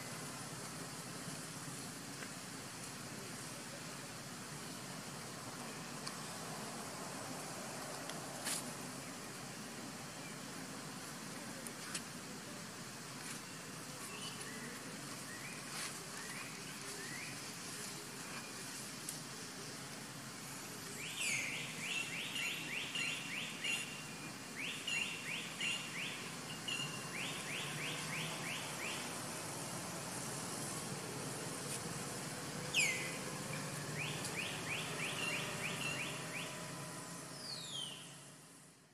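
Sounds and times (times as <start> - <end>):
outdoor background noise: 0.0 - 38.9
bird whistling and chirping: 32.7 - 33.2, 37.4 - 38.2.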